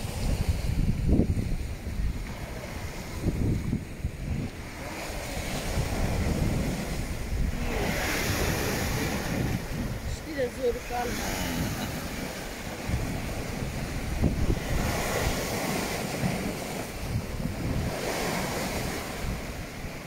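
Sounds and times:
wind gusting on microphone: 0.0 - 20.0.

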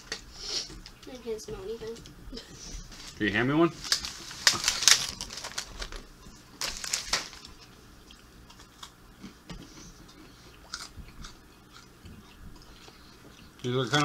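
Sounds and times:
plastic wrapper crinkling: 3.0 - 7.7.

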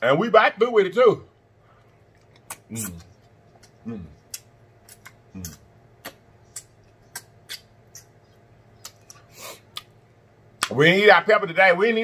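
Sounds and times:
wet lip smacks: 2.1 - 10.0
person humming: 3.8 - 4.2, 5.4 - 5.6.

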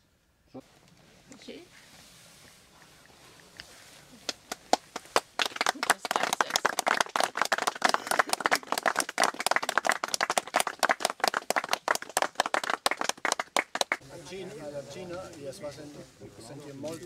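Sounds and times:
small group applauding: 4.2 - 14.0.

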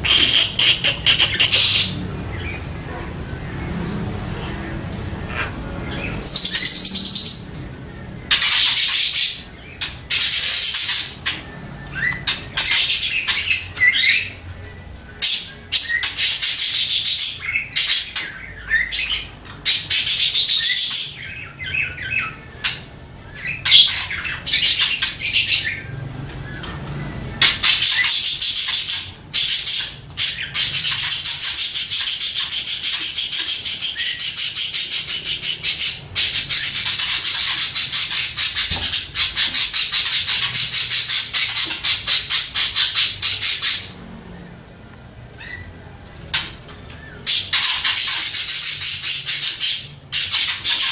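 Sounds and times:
budgerigar warbling chatter: 0.0 - 7.6, 27.3 - 44.0.

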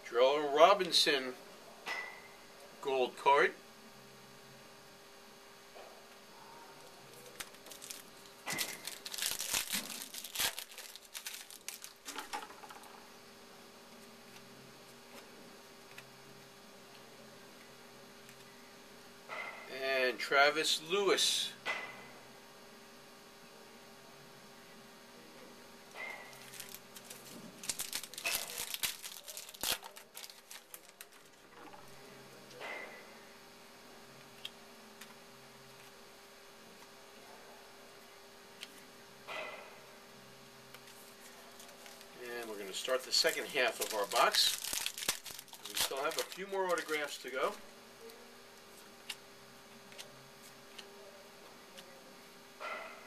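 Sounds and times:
wrapper crinkling and tearing: 7.1 - 12.8, 26.3 - 31.4, 40.9 - 47.6
quiet card handling: 26.1 - 31.9, 40.7 - 49.2.

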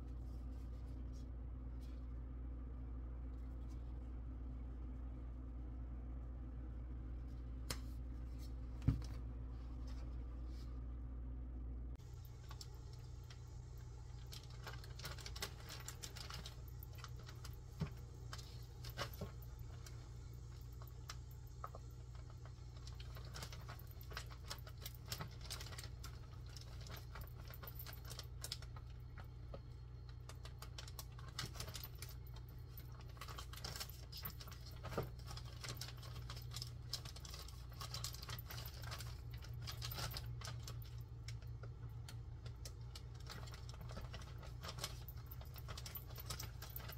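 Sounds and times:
steady low hum: 0.0 - 46.9
plastic bag crinkling: 12.0 - 21.1, 30.0 - 46.9.

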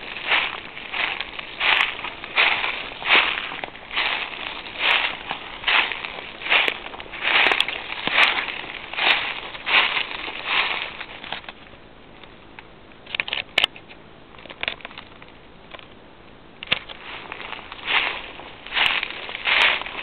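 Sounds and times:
footsteps crunching through dry leaves: 0.0 - 11.6, 16.8 - 20.0
small crackles and clicks: 0.0 - 16.0, 16.6 - 20.0.

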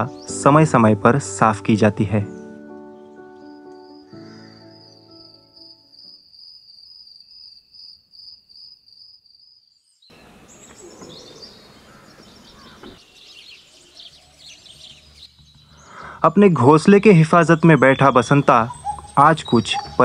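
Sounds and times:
faint bird chirps: 2.3 - 16.2, 17.1 - 20.0
insect trill: 3.4 - 14.3.

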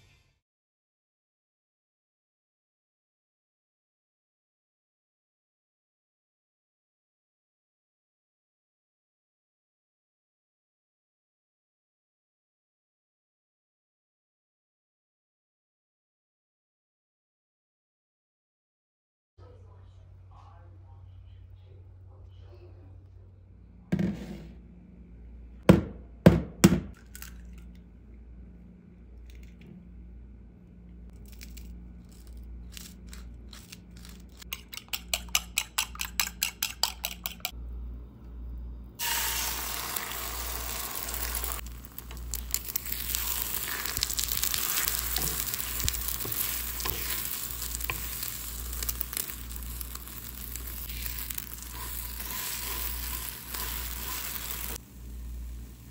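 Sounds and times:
eggs sizzling in a frying pan: 39.0 - 55.9.

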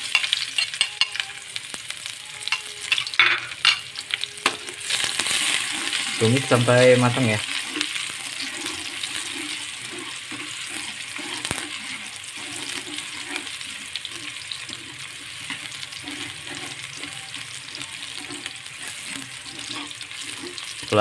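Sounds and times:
spatula scraping a wok: 0.0 - 1.6, 2.2 - 21.0
shallots sizzling in hot oil: 0.0 - 21.0.

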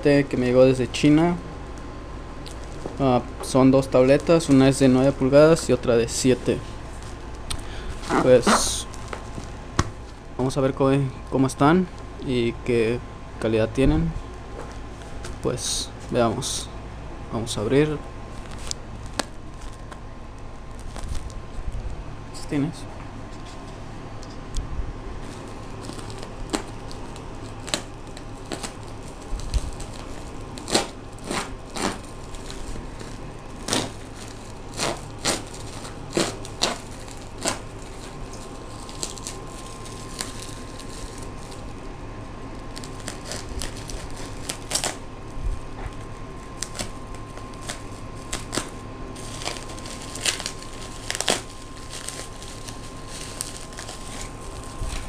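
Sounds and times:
bubble wrap crinkling: 0.7 - 10.8, 17.4 - 22.0, 25.2 - 55.0
plastic mailer bag tearing: 4.1 - 9.6, 18.3 - 20.0, 20.7 - 21.4, 25.2 - 55.0.

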